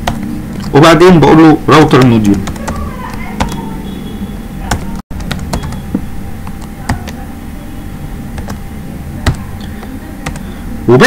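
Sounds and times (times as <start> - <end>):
low background hum: 0.0 - 11.0
keyboard keys clicking: 2.0 - 3.8, 4.6 - 7.2, 8.4 - 8.6, 9.2 - 10.5.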